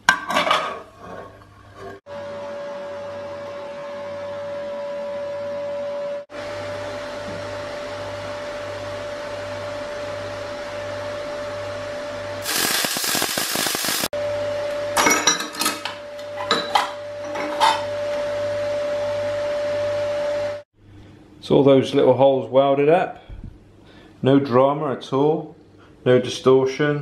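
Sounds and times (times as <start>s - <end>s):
welder hum: 2.1s - 15.0s
welding arc crackling: 12.4s - 14.1s.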